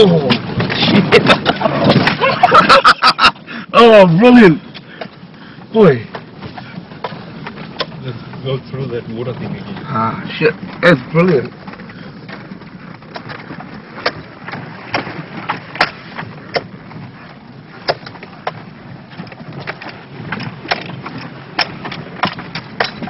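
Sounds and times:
off-road vehicle rumble: 0.0s - 23.0s
sharp knocks and clunks: 6.0s - 23.0s.

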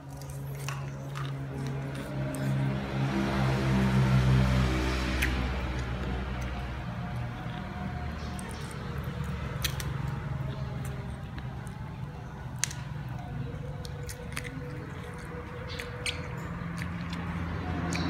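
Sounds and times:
person chewing and lip-smacking: 0.0s - 3.4s, 5.1s - 18.0s
wet biting clicks: 5.1s - 11.8s, 12.5s - 18.0s.

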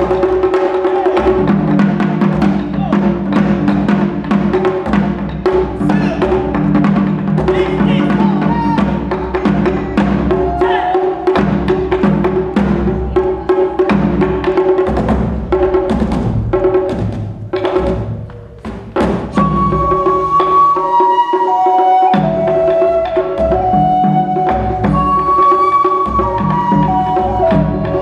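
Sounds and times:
taiko drumming: 0.0s - 28.0s
side-blown flute long notes: 10.2s - 11.4s, 19.4s - 28.0s.

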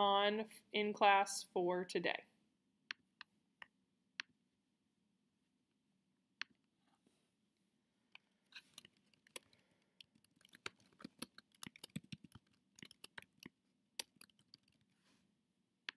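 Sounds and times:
computer keyboard and mouse clicking: 8.5s - 14.9s.

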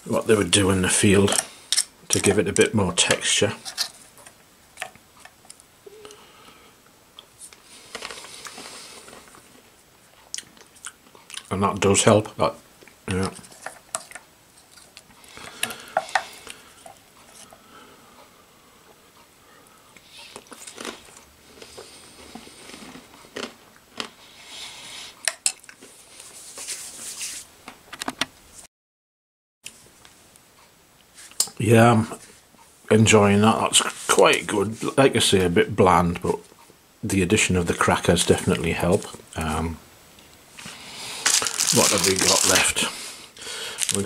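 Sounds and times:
person chewing food: 7.2s - 9.5s, 10.2s - 11.5s, 20.0s - 24.6s.

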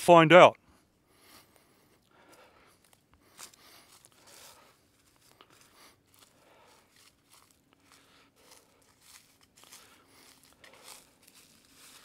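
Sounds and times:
footsteps in dry leaves: 2.7s - 12.0s.

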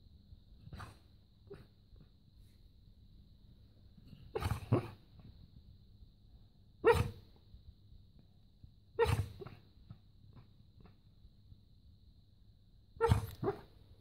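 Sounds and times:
dog barking in its sleep: 0.5s - 2.6s, 4.0s - 5.4s, 6.8s - 7.4s, 8.9s - 11.0s, 13.0s - 14.0s.

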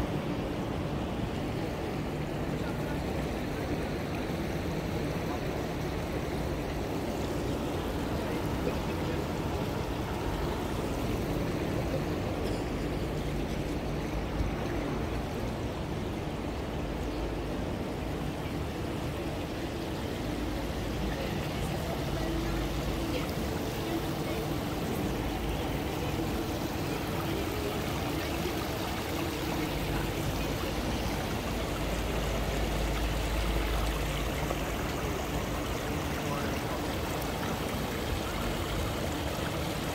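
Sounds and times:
fountain water rushing and trickling: 0.0s - 39.9s.

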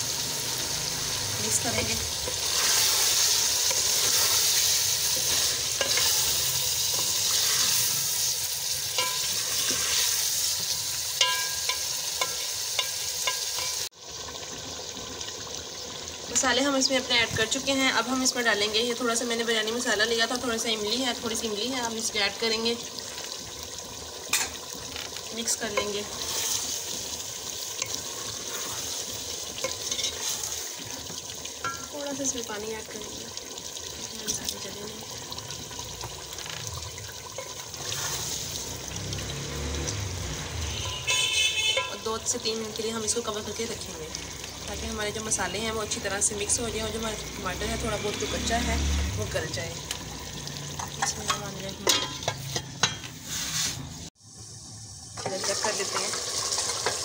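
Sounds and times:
food sizzling in hot oil: 0.0s - 57.0s
spoon scraping and clinking pot: 2.2s - 8.0s, 8.8s - 10.4s, 11.1s - 13.9s, 25.7s - 26.9s, 27.8s - 30.9s, 37.3s - 38.4s, 50.8s - 53.8s.

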